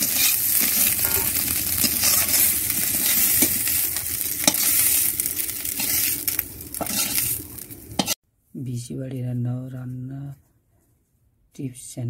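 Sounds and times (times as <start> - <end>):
fish sizzling in hot oil: 0.0 - 8.2
spatula scraping pan: 0.0 - 8.2.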